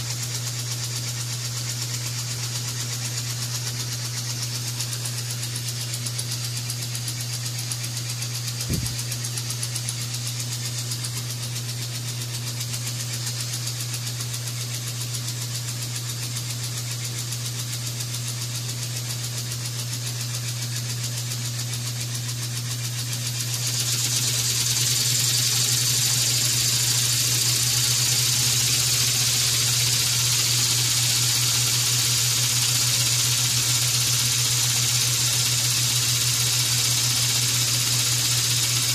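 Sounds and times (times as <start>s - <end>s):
small steam engine beating: 0.0s - 38.9s
steam hissing: 1.0s - 14.7s, 22.7s - 38.9s.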